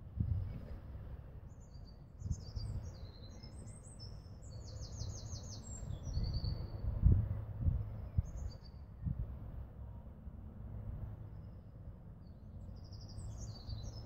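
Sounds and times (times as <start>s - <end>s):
wind rumbling on microphone: 0.0s - 3.8s, 5.8s - 10.0s.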